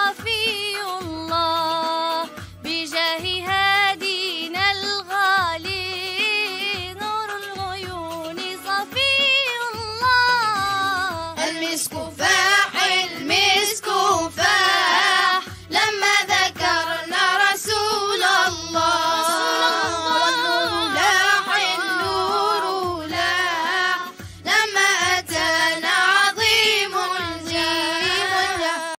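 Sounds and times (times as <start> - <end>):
children singing together: 10.5 - 29.0.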